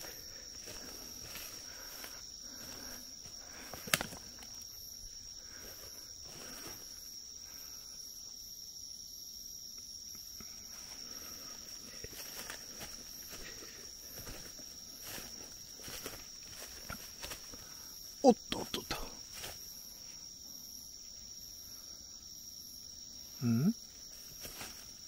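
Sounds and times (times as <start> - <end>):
footsteps on forest floor: 0.0 - 4.9, 5.5 - 7.0, 10.8 - 17.8
insects trilling: 0.0 - 25.0.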